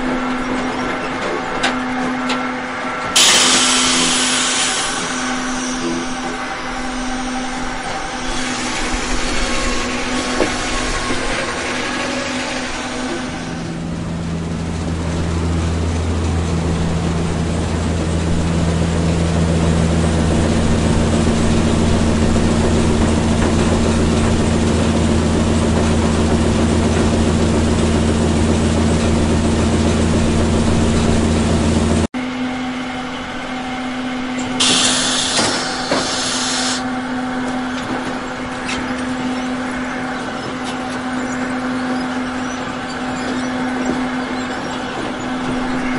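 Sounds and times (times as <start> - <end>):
heavy machinery humming: 0.0 - 45.9
loud hiss: 3.2 - 6.2, 34.6 - 36.8.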